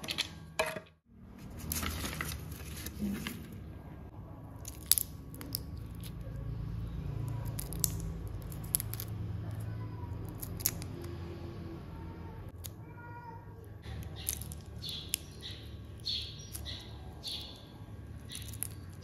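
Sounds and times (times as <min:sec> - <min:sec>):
shrimp shells cracking: 0:04.6 - 0:06.2, 0:07.4 - 0:09.1, 0:14.0 - 0:15.3.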